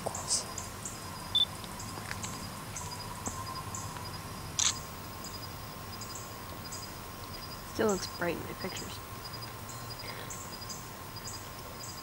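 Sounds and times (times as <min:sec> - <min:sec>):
insects chirping: 0:00.0 - 0:12.0
sharp click: 0:04.6 - 0:04.8.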